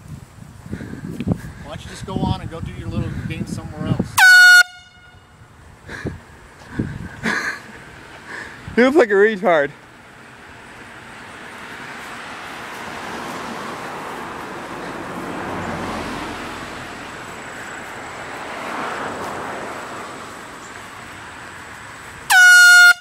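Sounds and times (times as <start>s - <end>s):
air horn blast: 4.2s - 5.4s, 22.3s - 23.0s.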